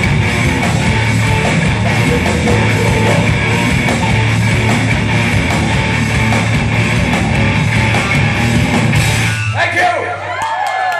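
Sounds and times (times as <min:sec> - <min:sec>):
hard rock band playing live: 0:00.0 - 0:09.8
drum hits: 0:01.4 - 0:07.9.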